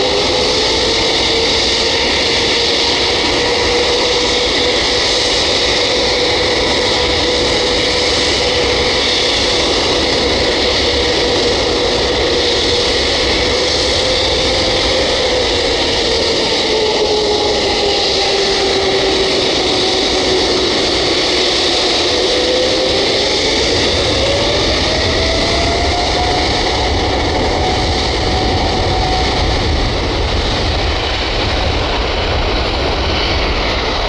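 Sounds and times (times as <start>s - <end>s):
jet engine whine: 0.0s - 34.0s.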